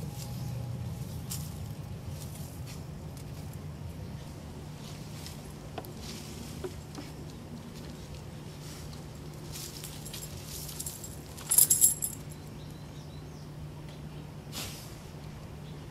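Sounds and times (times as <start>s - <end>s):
dog collar tags jingling: 9.8s - 12.5s.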